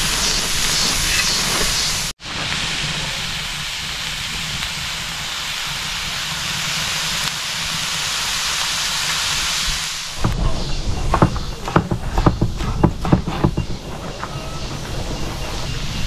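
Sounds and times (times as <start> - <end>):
food sizzling on a griddle: 0.0 - 10.3
low wind rumble: 0.0 - 16.0.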